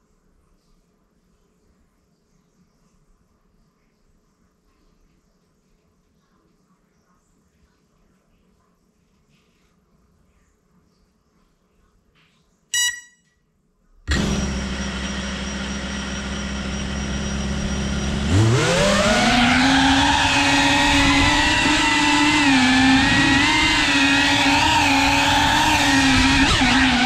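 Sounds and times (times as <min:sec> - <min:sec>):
short electronic beep: 0:12.8 - 0:13.3
drone motors whining: 0:14.1 - 0:27.0.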